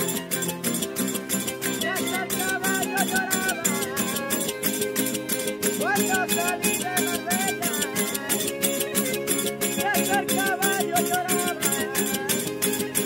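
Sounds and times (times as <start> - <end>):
jingling tambourine: 0.0 - 13.0
sliding violin melody: 0.0 - 13.0
strummed guitars: 0.0 - 13.0.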